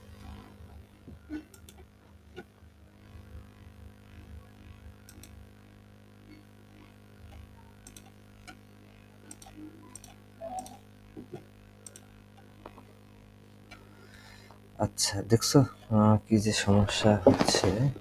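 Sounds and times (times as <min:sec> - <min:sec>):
steady low hum: 0:00.0 - 0:18.0
computer mouse clicks: 0:01.3 - 0:02.5, 0:05.1 - 0:05.4, 0:07.3 - 0:08.6, 0:09.2 - 0:12.8.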